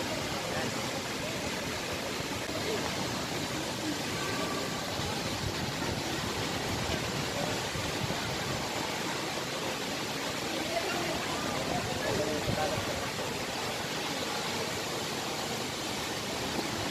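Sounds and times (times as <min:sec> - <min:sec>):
flowing water rushing: 0:00.0 - 0:16.9.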